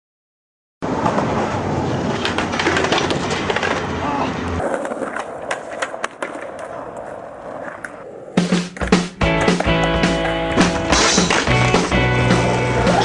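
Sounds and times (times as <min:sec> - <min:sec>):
skateboard wheels rolling on concrete: 0:00.8 - 0:13.0
skateboard clacks: 0:00.9 - 0:13.0
music: 0:08.4 - 0:13.0.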